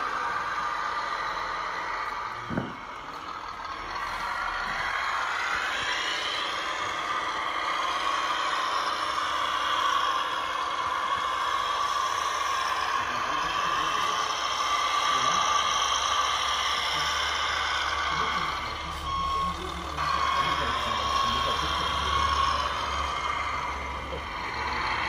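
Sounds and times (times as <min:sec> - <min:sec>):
electric motor whining: 0:00.0 - 0:25.0
short thump: 0:02.5 - 0:02.8.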